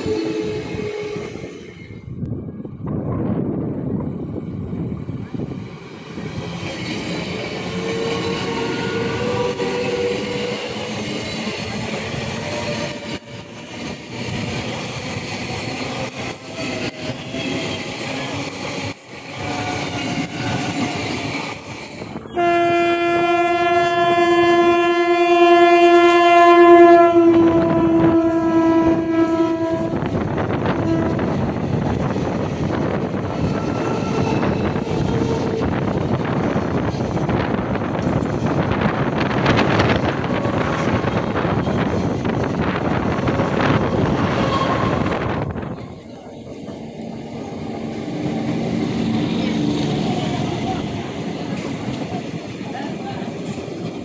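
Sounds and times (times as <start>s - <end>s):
train wheels clattering on rails: 6.2s - 22.3s, 29.9s - 54.0s
loud train horn blast: 7.8s - 10.8s, 22.3s - 31.5s.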